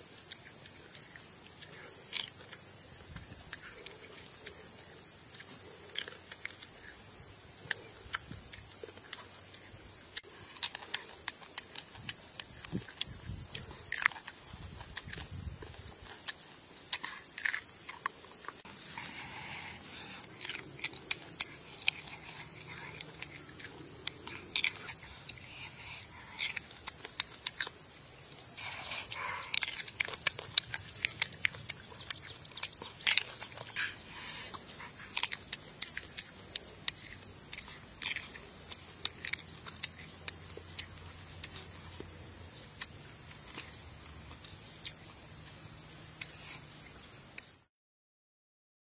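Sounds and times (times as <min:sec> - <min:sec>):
crunching and chewing fruit: 0:00.0 - 0:47.7
high-pitched insect trill: 0:00.0 - 0:47.7
wet mouth clicks: 0:28.5 - 0:41.6.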